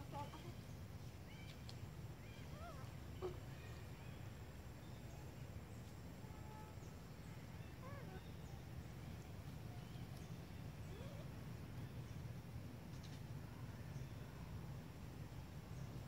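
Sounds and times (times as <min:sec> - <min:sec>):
faint animal calls: 0:02.2 - 0:03.9.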